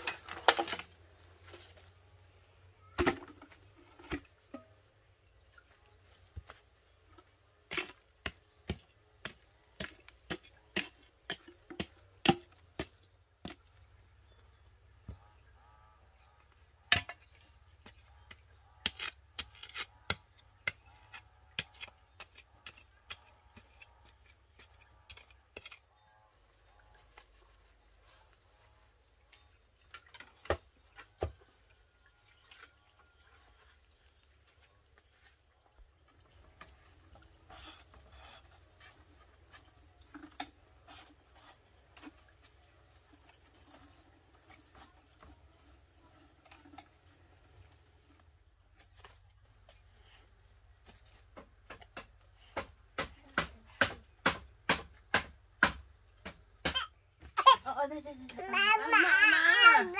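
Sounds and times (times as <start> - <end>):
blade chopping wood: 52.6 - 56.9.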